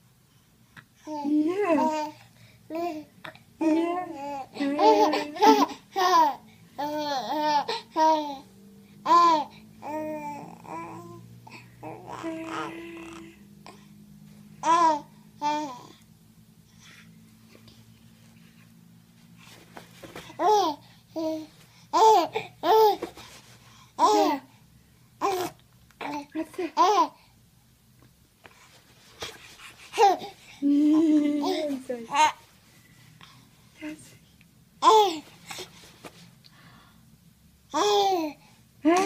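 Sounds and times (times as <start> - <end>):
baby laughing and babbling: 1.0 - 3.1, 3.7 - 13.4, 14.6 - 16.0, 20.2 - 23.1, 24.0 - 24.5, 25.2 - 27.2, 29.9 - 32.4, 34.8 - 35.7, 37.7 - 38.4
baby laughing: 4.6 - 8.3.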